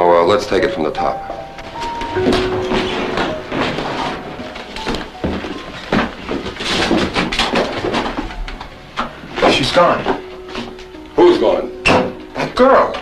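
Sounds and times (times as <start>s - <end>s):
hurried footsteps: 1.3s - 11.0s.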